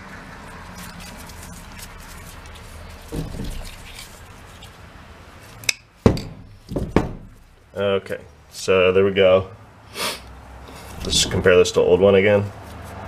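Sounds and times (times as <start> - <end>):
gloved hands rustling and rubbing: 0.6 - 7.7, 10.7 - 11.6, 12.5 - 13.0.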